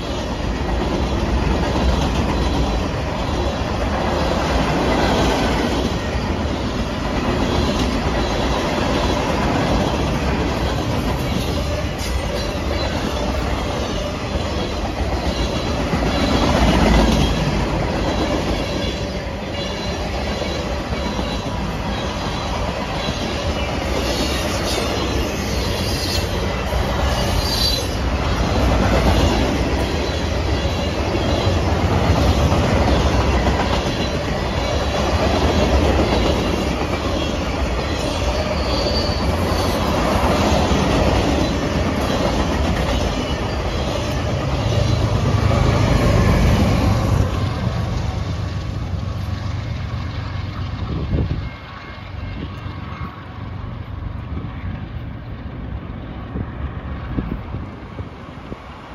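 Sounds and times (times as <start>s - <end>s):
train wheels rumbling and clattering: 0.0s - 58.9s
high wheel squeals: 18.3s - 28.1s, 37.2s - 40.2s.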